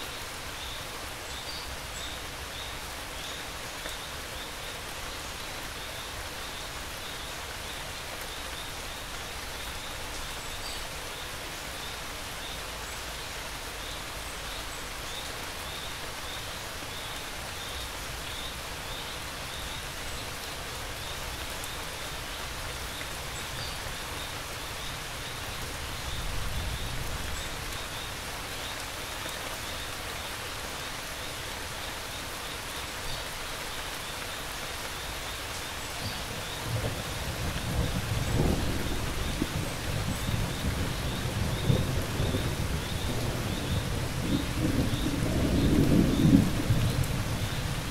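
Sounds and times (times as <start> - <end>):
steady rain falling: 0.0 - 47.9
low rumble of thunder: 36.6 - 47.9.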